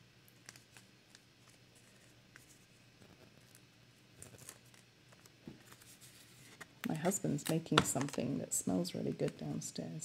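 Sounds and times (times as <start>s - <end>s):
paper rustling: 4.2s - 6.7s.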